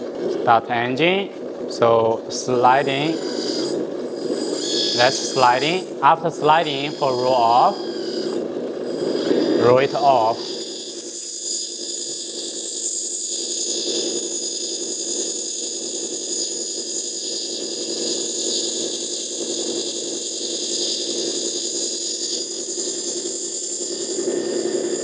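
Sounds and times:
hydraulic pump whining: 1.8 - 14.2.

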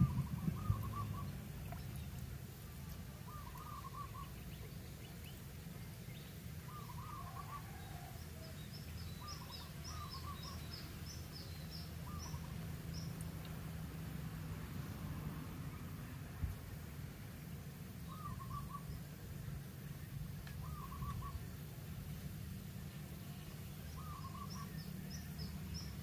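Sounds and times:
bird twittering high: 0.0 - 1.4, 3.3 - 4.4, 20.6 - 21.4, 23.9 - 25.9
low rumble: 0.0 - 2.2.

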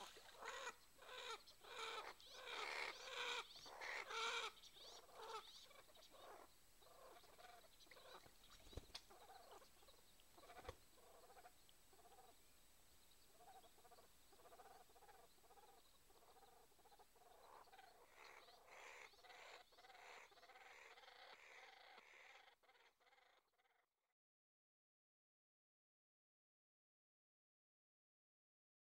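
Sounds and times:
duck calling faintly: 0.0 - 8.3.

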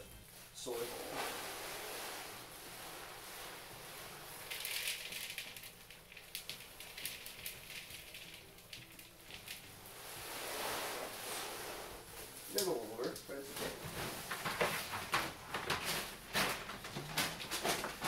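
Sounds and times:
pellets pouring into plastic bowl: 3.2 - 11.1.

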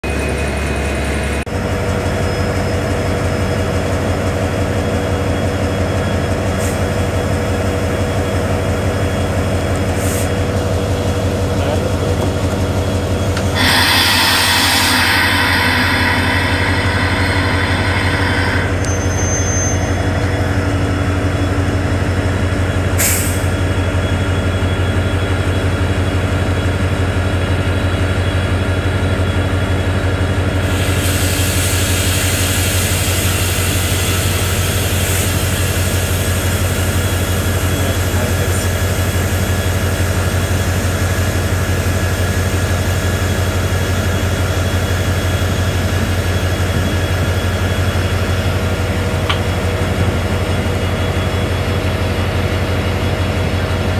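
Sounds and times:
locomotive engine idling: 0.9 - 23.0
loud hiss: 13.4 - 19.6.

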